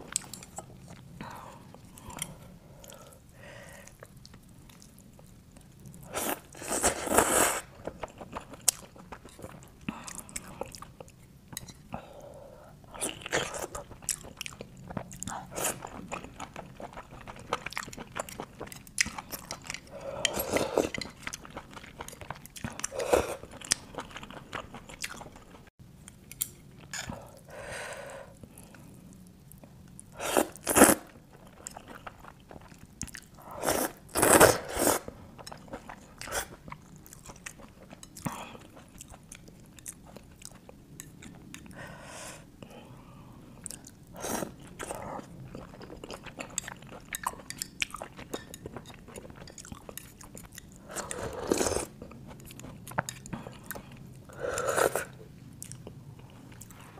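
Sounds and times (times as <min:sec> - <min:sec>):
wet chewing: 0:13.1 - 0:25.7.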